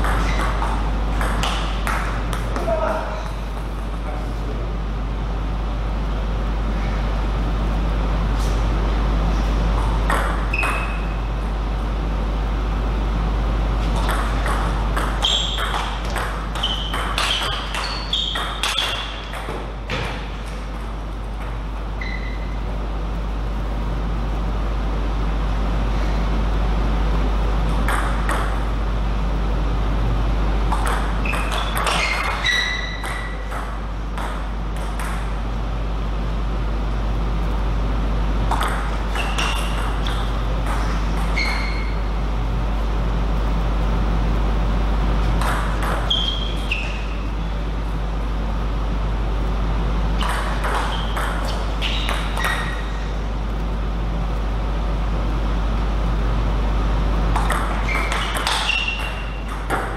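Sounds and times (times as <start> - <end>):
table tennis ball pinging: 0.0 - 2.7, 9.8 - 11.2, 13.9 - 22.4, 27.8 - 28.6, 30.7 - 35.4, 38.5 - 42.0, 45.4 - 47.1, 50.2 - 52.9, 57.3 - 59.9
steady low hum: 0.0 - 59.9.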